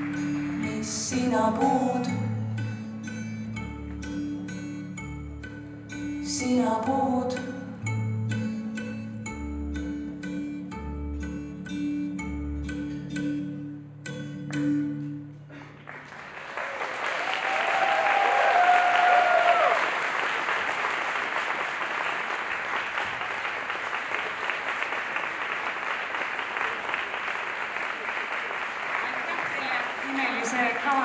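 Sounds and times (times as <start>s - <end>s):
audience applause: 0.0s - 0.7s, 15.8s - 31.0s
plucked-string music: 0.0s - 16.0s
cheering whoops: 16.4s - 20.3s.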